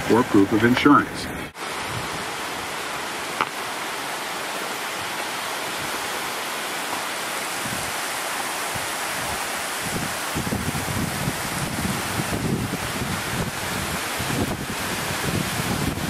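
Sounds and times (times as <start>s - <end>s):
wind buffeting microphone: 0.0s - 3.1s, 7.4s - 16.0s
heavy rain hissing: 0.0s - 16.0s.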